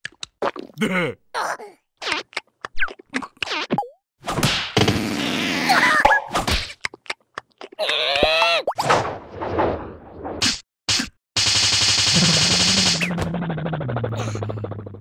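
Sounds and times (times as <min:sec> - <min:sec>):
pitched vocal cry: 0:07.6 - 0:08.7
gliding cartoon vocal sounds: 0:12.2 - 0:15.0.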